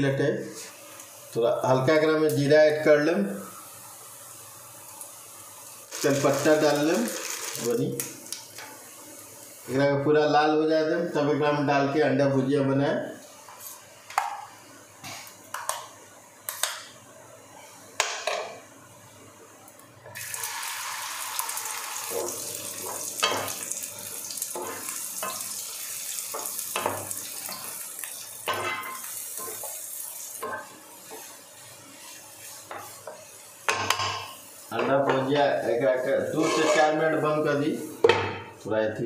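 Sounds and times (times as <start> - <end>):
egg sizzling in hot oil: 0.6 - 9.8, 20.1 - 38.1
wooden spatula scraping pan: 36.0 - 37.2.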